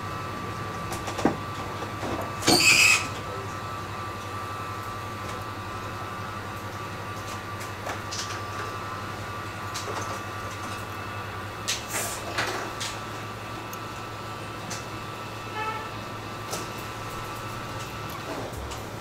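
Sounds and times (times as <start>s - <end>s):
hot air blowing: 11.7s - 12.4s.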